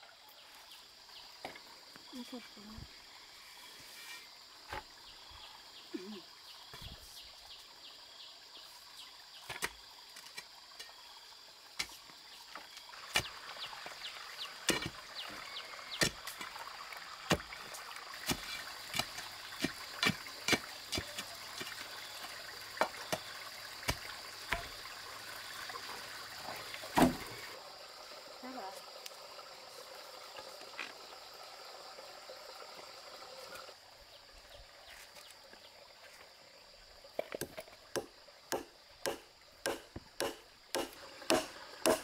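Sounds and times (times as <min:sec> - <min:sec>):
pole thudding into soil: 0:26.9 - 0:27.4.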